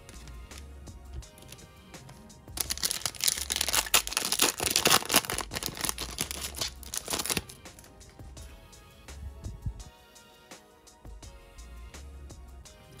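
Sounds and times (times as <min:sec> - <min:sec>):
soft background music: 0:00.0 - 0:13.0
foil wrapper crinkling and tearing: 0:02.6 - 0:07.9.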